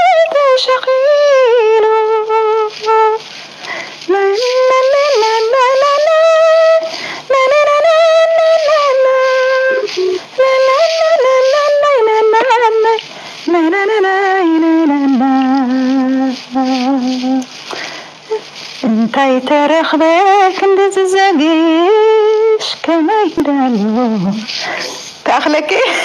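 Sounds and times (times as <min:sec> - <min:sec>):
singer breathing: 0:03.2 - 0:04.1, 0:06.8 - 0:07.3, 0:13.0 - 0:13.5, 0:17.6 - 0:18.6, 0:24.5 - 0:25.2.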